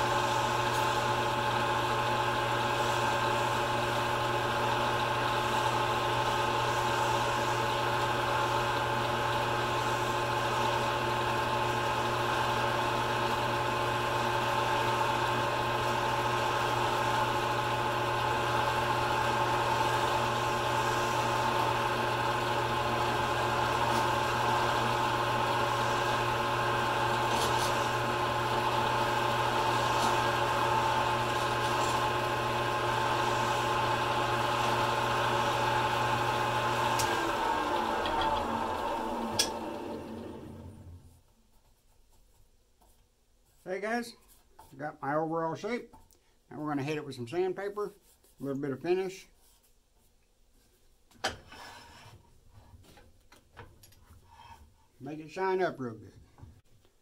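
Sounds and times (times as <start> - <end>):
chisel cutting spinning acrylic: 0.0 - 40.0
lathe humming: 0.0 - 41.1.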